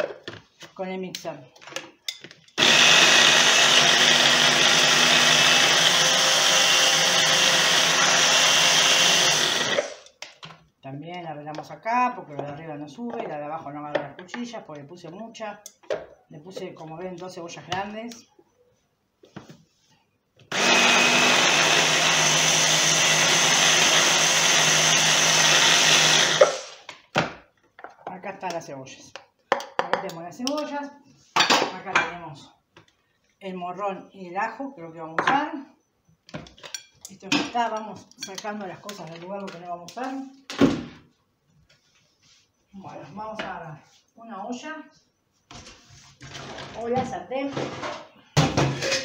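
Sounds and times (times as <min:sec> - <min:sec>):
hand blender chopping onion: 0:02.6 - 0:10.0, 0:20.5 - 0:26.8.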